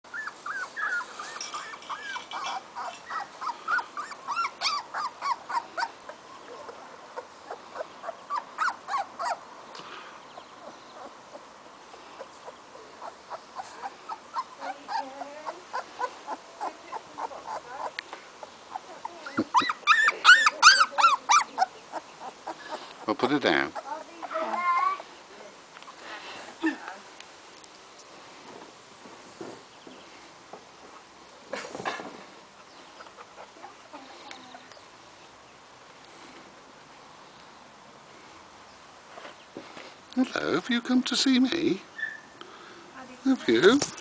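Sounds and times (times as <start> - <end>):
puppy whimpering and squealing: 0.1 - 9.4, 13.0 - 18.0, 18.7 - 22.6.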